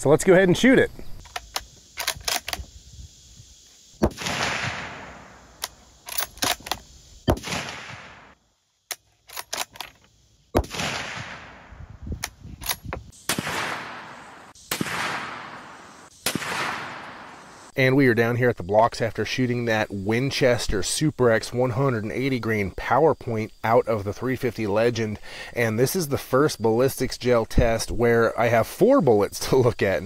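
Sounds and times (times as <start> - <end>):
rifle bolt clicks: 1.2 - 2.6, 5.6 - 6.8
rifle shots with rolling echo: 4.0 - 5.6, 7.3 - 8.4, 10.6 - 11.8, 13.2 - 17.7.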